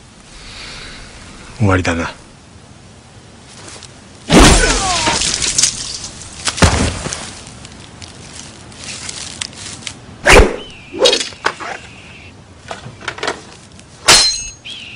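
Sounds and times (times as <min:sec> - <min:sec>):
blade ringing: 0:14.1 - 0:14.6.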